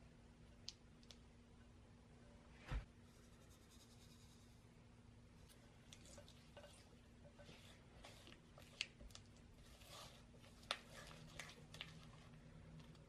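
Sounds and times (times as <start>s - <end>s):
spatula scraping and squishing: 5.4s - 13.0s.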